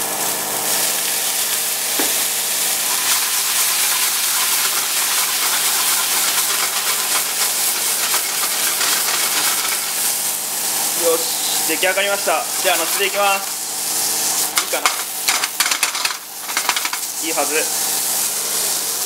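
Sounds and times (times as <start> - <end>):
liquid boiling off hissing: 0.0 - 19.0
steak sizzling in frying pan: 0.0 - 19.0.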